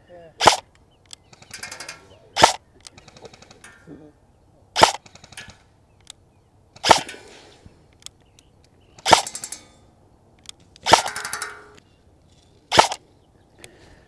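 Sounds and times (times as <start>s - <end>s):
airsoft rifle shots: 0.4s - 0.7s, 1.3s - 3.9s, 4.8s - 5.7s, 6.8s - 7.3s, 9.0s - 9.7s, 10.8s - 11.8s, 12.7s - 13.0s.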